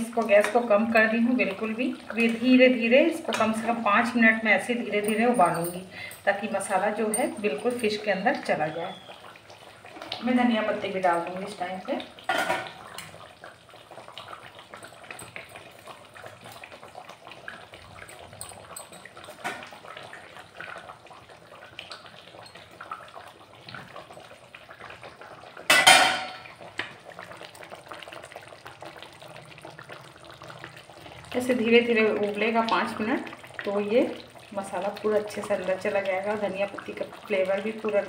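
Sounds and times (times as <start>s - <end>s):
clinks against a pan: 5.0s - 6.2s, 18.0s - 19.7s, 25.7s - 26.4s.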